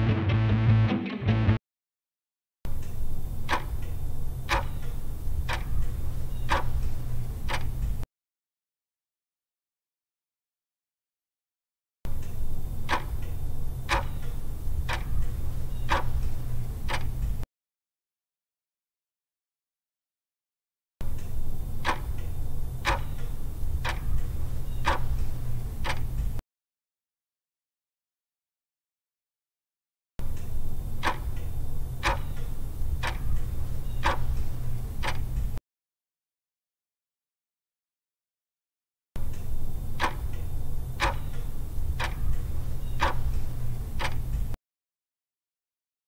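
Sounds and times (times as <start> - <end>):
steady low hum: 2.7 - 8.0, 12.1 - 17.4, 21.0 - 26.4, 30.2 - 35.6, 39.2 - 44.6
clock ticks: 3.5 - 6.9, 7.5 - 7.7, 12.9 - 17.1, 21.8 - 26.1, 31.0 - 35.3, 40.0 - 44.5.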